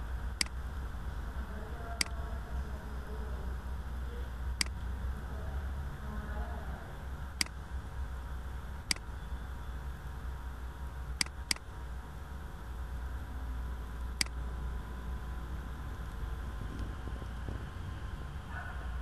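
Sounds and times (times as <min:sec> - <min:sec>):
low steady hum: 0:00.0 - 0:19.0
computer mouse clicking: 0:11.2 - 0:11.7, 0:14.2 - 0:14.4.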